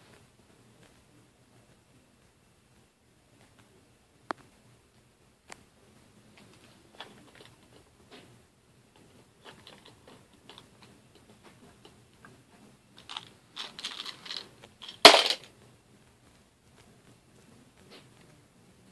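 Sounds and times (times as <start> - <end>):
toy trains clattering: 13.0 - 15.5
toy trains clicking and knocking: 13.0 - 15.5.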